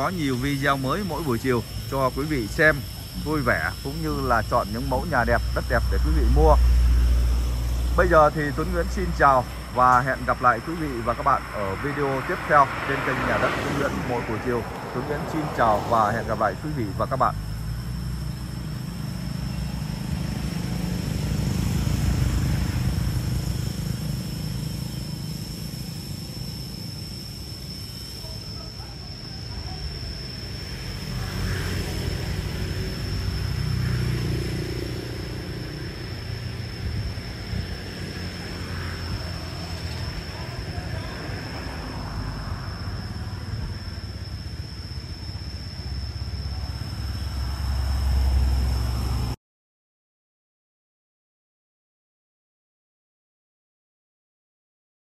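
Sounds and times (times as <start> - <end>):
vehicle passing: 0.0 - 24.7, 30.6 - 43.8
high-pitched whine: 0.0 - 49.4.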